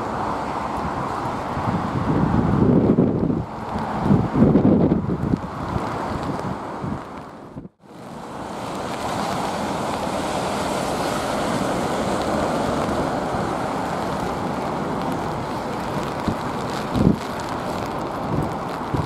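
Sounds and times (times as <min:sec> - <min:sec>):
storm wind on microphone: 0:00.0 - 0:19.0
jet engines on approach: 0:07.8 - 0:16.0.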